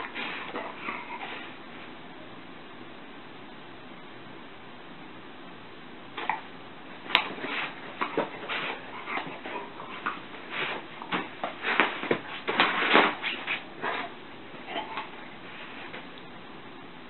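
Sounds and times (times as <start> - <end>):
dog vocalising: 0.0 - 1.6, 7.9 - 10.3, 13.2 - 15.4.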